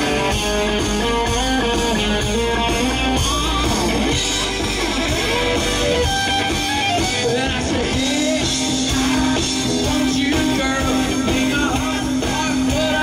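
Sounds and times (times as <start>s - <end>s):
country-rock band playing: 0.0s - 13.0s
man singing: 7.0s - 13.0s.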